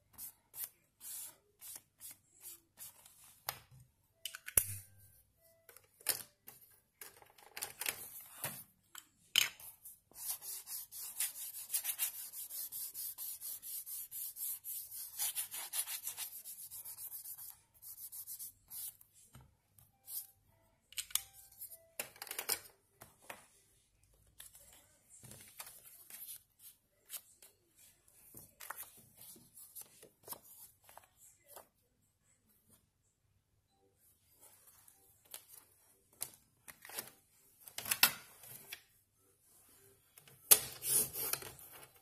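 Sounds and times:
rubbing strokes on paper: 10.1s - 19.0s.

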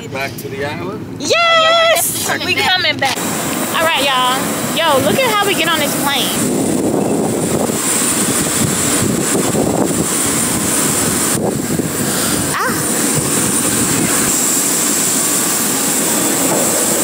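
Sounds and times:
jet turbine roar with whine: 0.0s - 17.0s.

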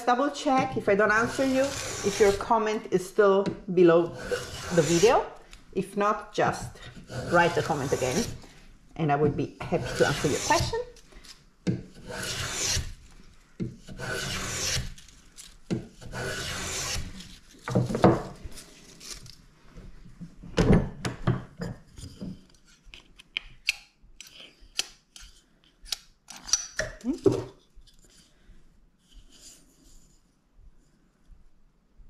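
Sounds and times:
plane rasping on wood: 1.1s - 2.5s, 4.0s - 5.2s, 6.9s - 8.4s, 9.7s - 10.7s, 11.9s - 12.9s, 13.8s - 14.9s, 16.0s - 17.1s.

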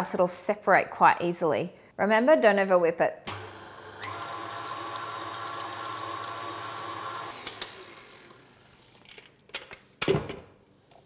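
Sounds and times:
stand mixer motor hum: 3.4s - 8.6s.

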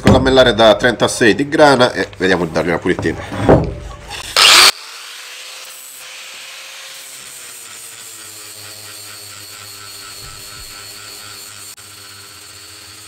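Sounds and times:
angle grinder grinding steel: 4.1s - 13.0s.

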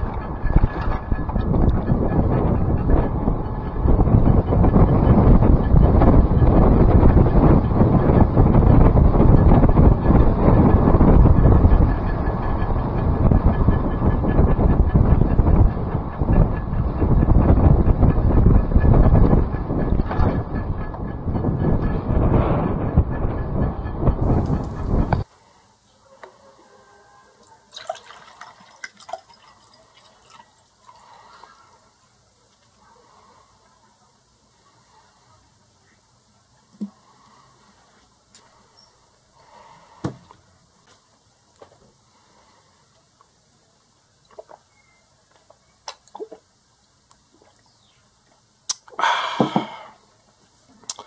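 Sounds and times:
water poured into a glass: 27.7s - 31.0s
person swallowing water: 48.7s - 50.0s
loud breathy exhale: 49.0s - 50.1s.

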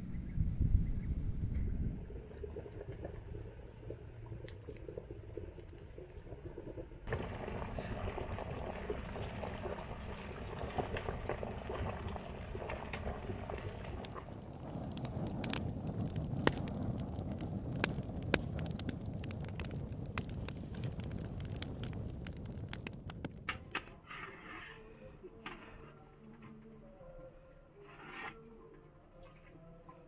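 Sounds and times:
low rushing of flames: 1.3s - 24.4s
wood fire crackling: 7.0s - 24.0s.

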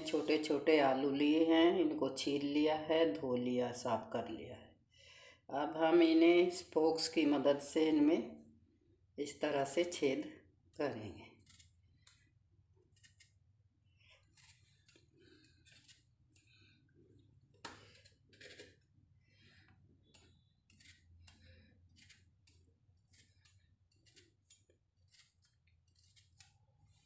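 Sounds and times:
fork pricking potatoes: 11.4s - 16.8s, 20.0s - 26.7s.

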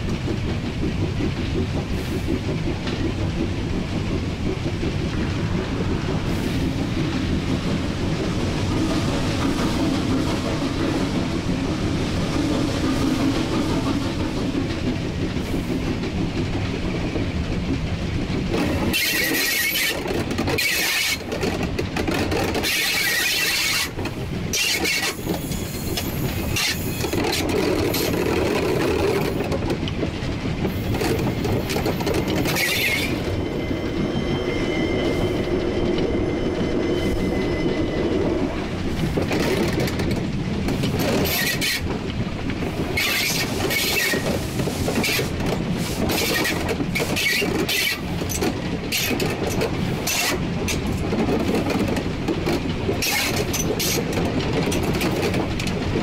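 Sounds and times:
steam locomotive rumbling: 0.0s - 56.0s
high steady squeal: 32.4s - 38.8s.

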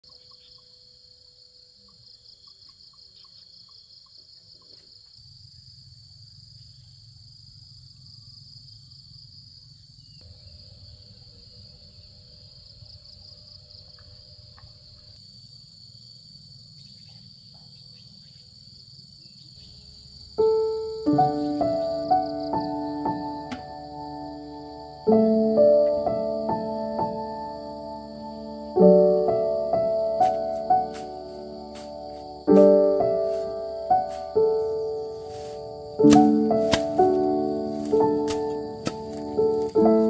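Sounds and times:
insects chirping shrill trill: 0.0s - 40.0s
piano music: 20.4s - 40.0s.

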